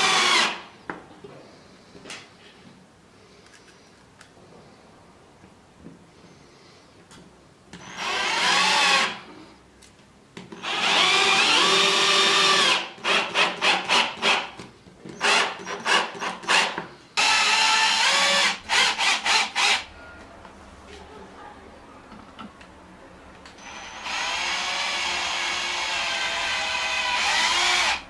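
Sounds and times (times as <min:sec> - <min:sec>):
drill driving screws: 0:00.0 - 0:00.6, 0:07.8 - 0:09.2, 0:10.5 - 0:14.6, 0:15.2 - 0:19.9, 0:23.6 - 0:28.0.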